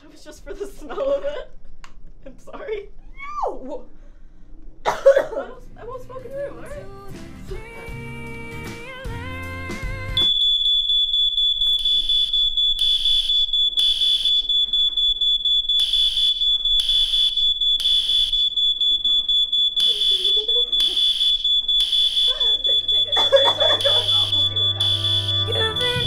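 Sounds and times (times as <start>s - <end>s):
music: 5.6s - 10.2s, 24.1s - 26.0s
smoke alarm beeping: 10.2s - 26.0s.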